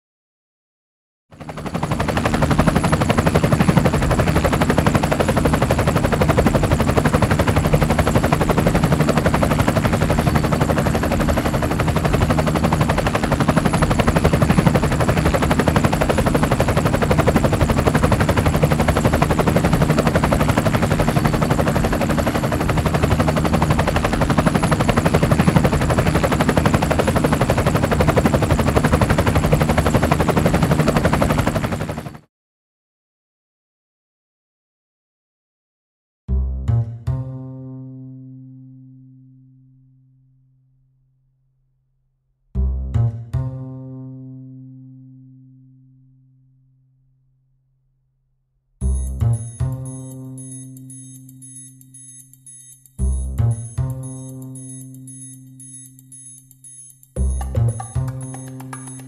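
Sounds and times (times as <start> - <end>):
drone propellers whirring: 1.4 - 32.1.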